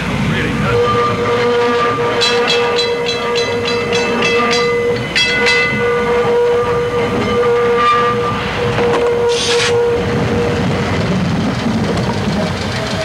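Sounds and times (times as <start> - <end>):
bell clanging rapidly: 2.2 - 6.1.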